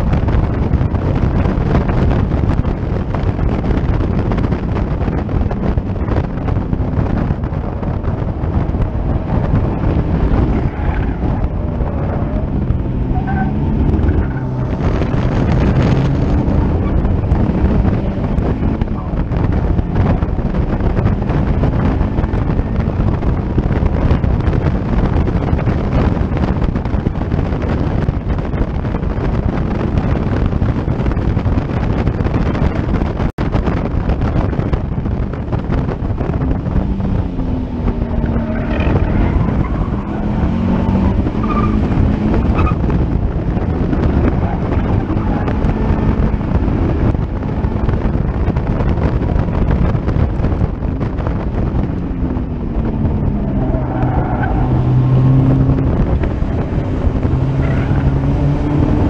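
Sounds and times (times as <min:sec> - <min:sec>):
race car engine running hard: 0:00.0 - 0:59.0
wind buffeting microphone: 0:00.0 - 0:59.0.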